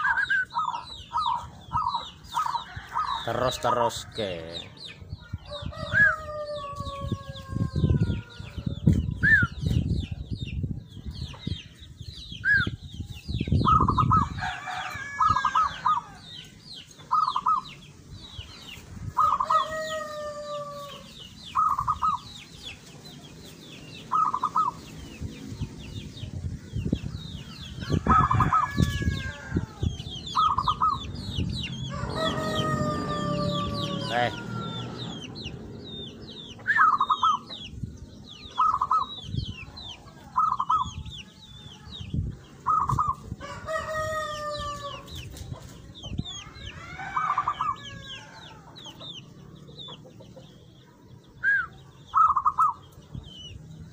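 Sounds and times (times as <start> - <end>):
small birds chirping: 0.0 - 53.9
rooster crowing: 5.4 - 8.8, 14.1 - 16.3, 19.2 - 21.2, 27.8 - 31.0, 31.8 - 35.4, 43.4 - 45.0, 46.6 - 48.9.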